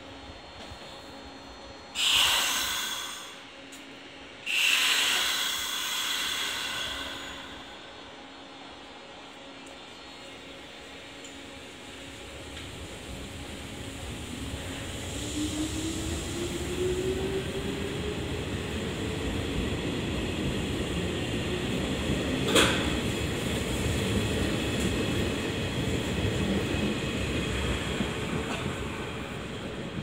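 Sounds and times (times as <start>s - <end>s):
train motor whine: 0.5s - 9.0s.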